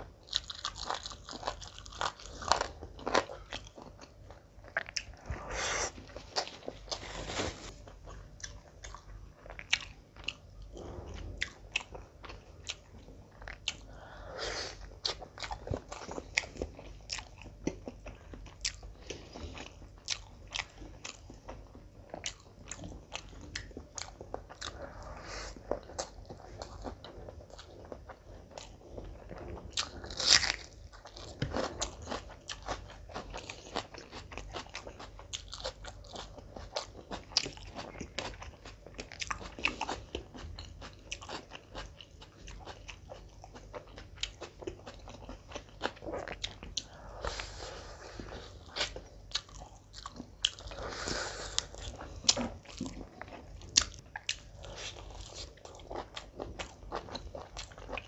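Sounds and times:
wet chewing and lip smacking: 51.6s - 58.0s.

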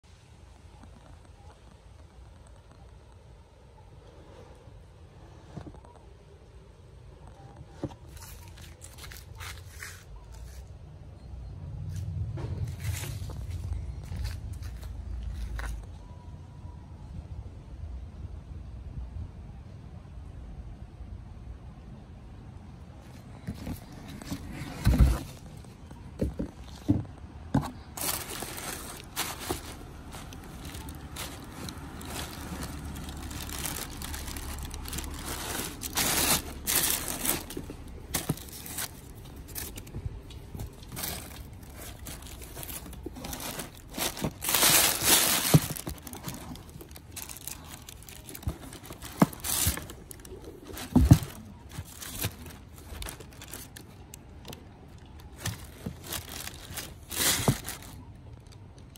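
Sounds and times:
tissue paper rustling: 27.8s - 39.9s, 40.6s - 53.8s, 55.4s - 58.0s.

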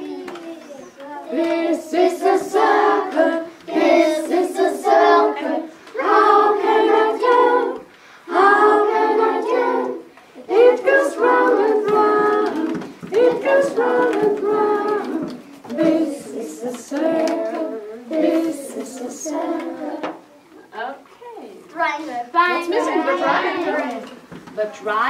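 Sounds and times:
woman and children singing: 0.0s - 20.3s, 22.6s - 24.3s.

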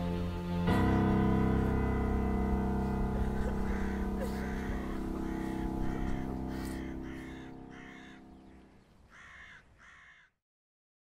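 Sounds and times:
music low held chord: 0.0s - 8.9s
bird calling: 1.8s - 10.3s.

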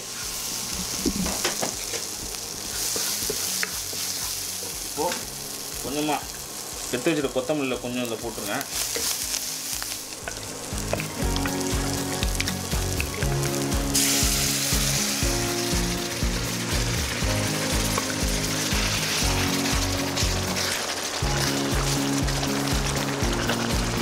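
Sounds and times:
loud hiss of sizzling: 0.0s - 24.0s
masala sizzling in a pan: 0.0s - 24.0s
background music with steady beat: 7.8s - 24.0s.

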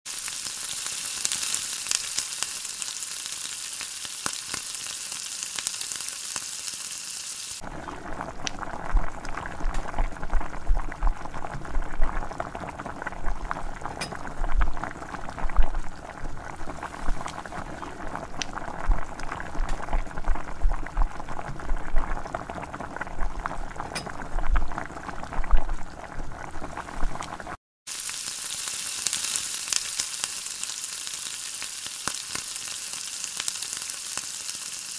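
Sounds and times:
oil sizzling and bubbling: 0.0s - 34.9s.

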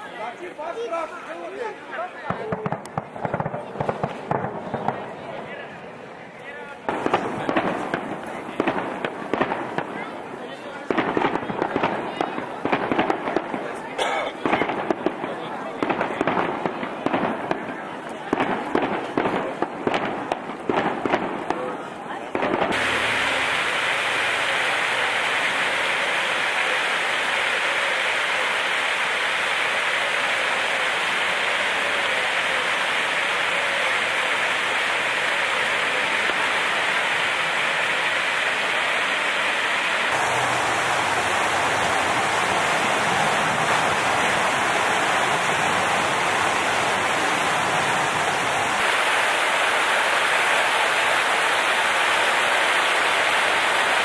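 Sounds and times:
steady rushing noise: 22.6s - 54.0s.

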